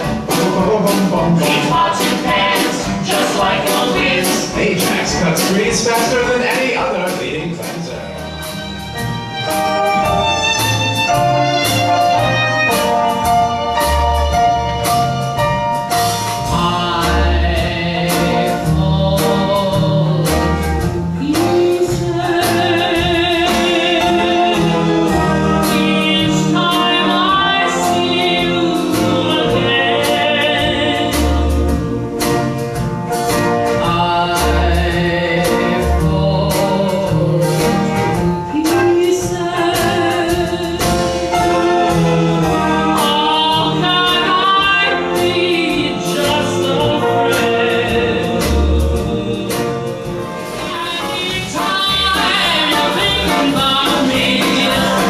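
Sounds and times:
live band playing: 0:00.0 - 0:55.0
plucked upright bass: 0:00.0 - 0:55.0
woman singing country ballad: 0:21.2 - 0:31.9, 0:33.8 - 0:41.6, 0:42.6 - 0:49.8, 0:50.6 - 0:55.0.

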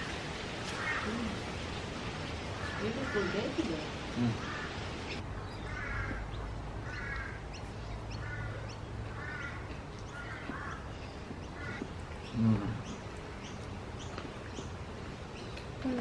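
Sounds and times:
bird calling harshly: 0:02.6 - 0:11.9.

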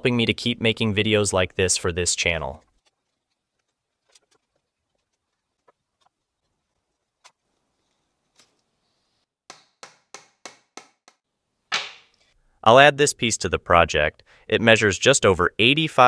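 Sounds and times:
sharp wooden knocks: 0:09.5 - 0:12.1.

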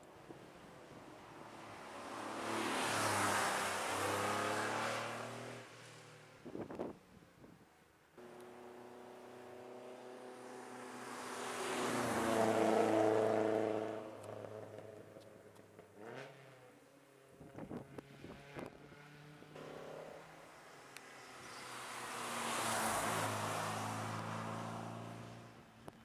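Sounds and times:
rally car engine passing: 0:01.9 - 0:05.7, 0:08.2 - 0:15.1, 0:17.7 - 0:25.5.

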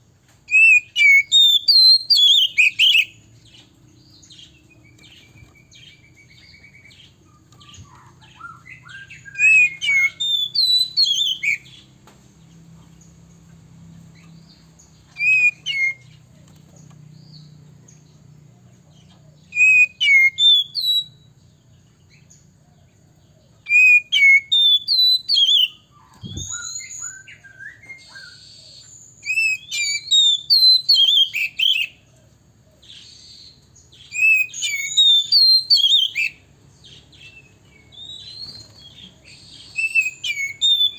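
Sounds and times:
bird whistles and chirps: 0:00.5 - 0:03.7, 0:04.3 - 0:11.9, 0:15.0 - 0:16.2, 0:19.4 - 0:21.3, 0:23.6 - 0:32.0, 0:32.9 - 0:40.9.

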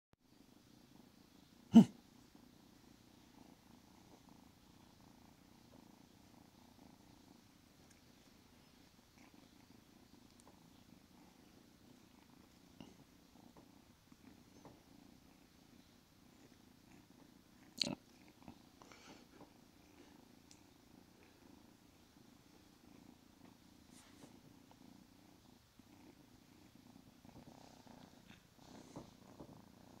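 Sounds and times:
kitten purring: 0:00.3 - 0:30.0.

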